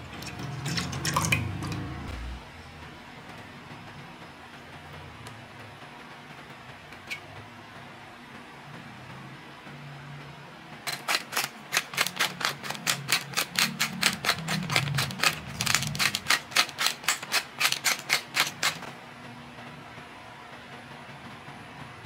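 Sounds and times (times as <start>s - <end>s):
salt mill grinding clicks: 10.9s - 18.9s.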